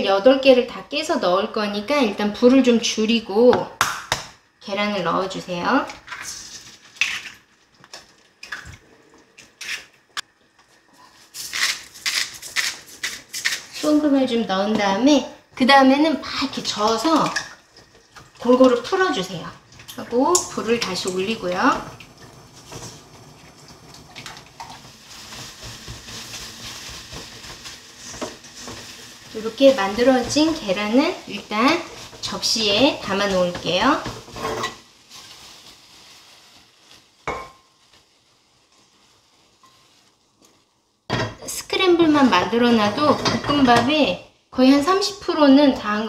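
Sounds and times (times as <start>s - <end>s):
eggs sizzling in a wok: 0.0s - 46.0s
spatula scraping a pan: 24.6s - 35.4s.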